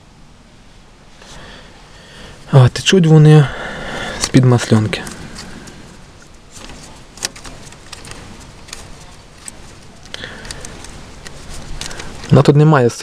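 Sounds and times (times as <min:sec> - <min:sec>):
handling noise: 0:03.6 - 0:12.7.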